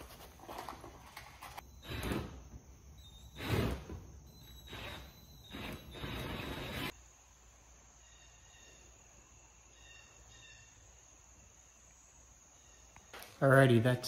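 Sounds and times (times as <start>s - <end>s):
faint bird chirps: 8.0s - 11.9s.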